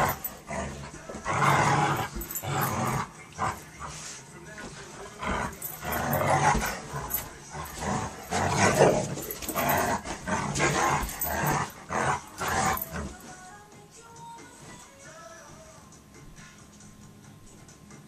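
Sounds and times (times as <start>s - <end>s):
dogs play-growling and snarling: 0.0s - 13.4s
background music: 0.0s - 18.0s.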